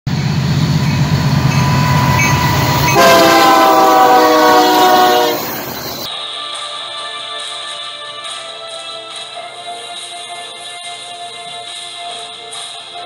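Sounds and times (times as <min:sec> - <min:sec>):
locomotive engine rumbling: 0:00.1 - 0:06.1
train air horn chord: 0:00.1 - 0:06.1.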